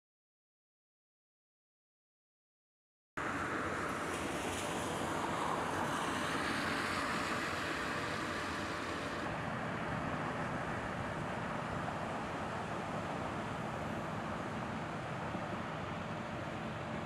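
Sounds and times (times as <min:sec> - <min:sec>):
hiss: 0:05.4 - 0:09.3.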